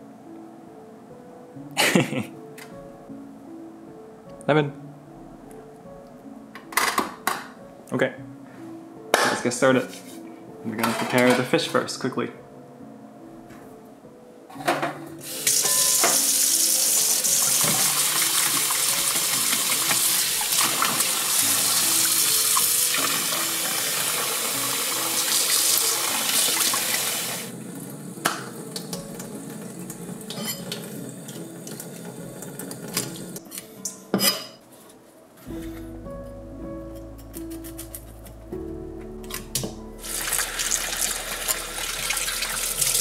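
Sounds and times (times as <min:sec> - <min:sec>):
tap running into steel bowl: 0:15.5 - 0:16.3.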